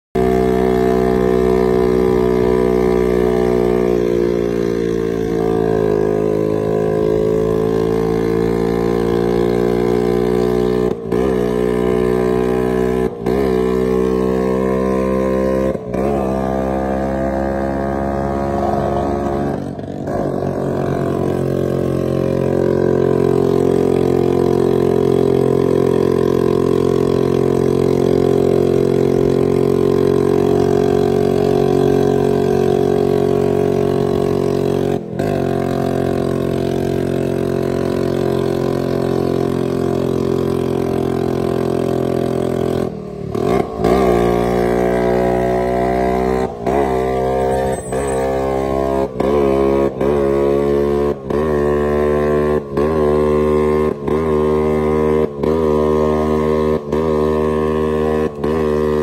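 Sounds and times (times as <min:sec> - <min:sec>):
scooter engine running under load: 0:00.2 - 0:59.0.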